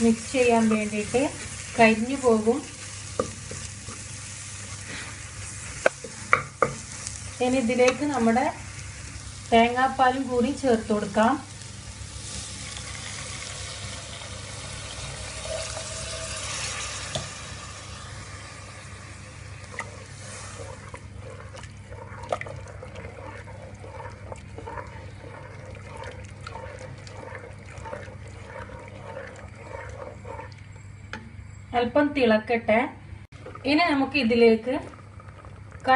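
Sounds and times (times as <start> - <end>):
wooden spatula scraping a pot: 0.0 - 8.5, 19.4 - 31.3
liquid pouring into a pot: 12.4 - 30.7.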